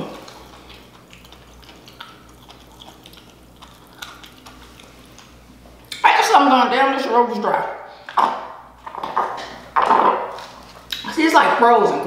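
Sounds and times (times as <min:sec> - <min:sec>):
swallowing: 0:00.0 - 0:06.0.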